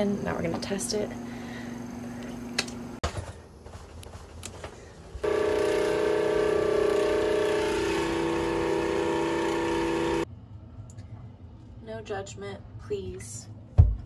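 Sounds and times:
water pump humming: 5.2s - 10.2s.

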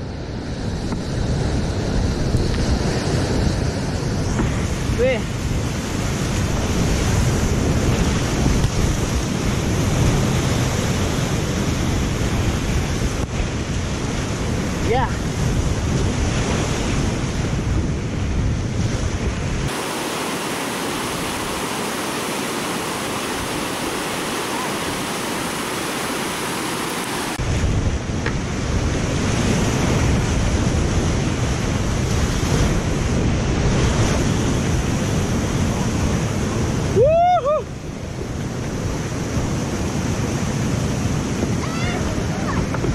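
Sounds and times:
wind buffeting microphone: 0.0s - 42.9s
whitewater rushing: 19.6s - 27.6s.

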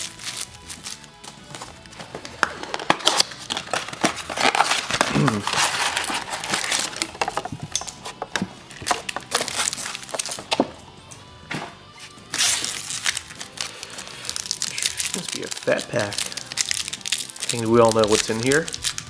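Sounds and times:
foil packs crinkling: 0.0s - 10.6s, 12.2s - 19.0s
cardboard box tearing open: 2.6s - 7.3s.

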